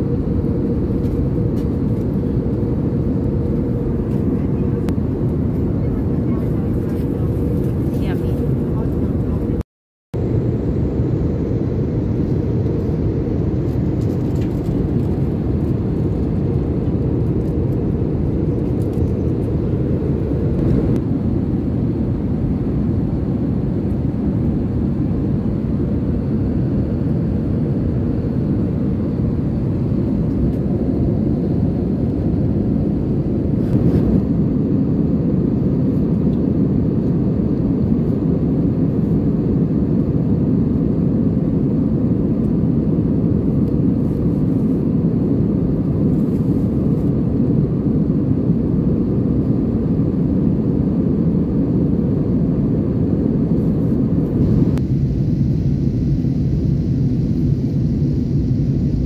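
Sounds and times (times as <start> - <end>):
airliner cabin engine rumble: 0.0 - 9.6, 10.2 - 59.0.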